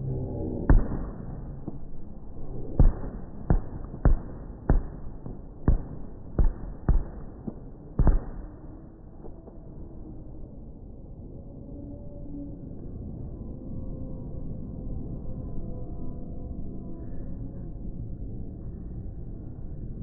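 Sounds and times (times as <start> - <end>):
low rumble: 0.0 - 20.0
firework shells booming: 2.8 - 8.7.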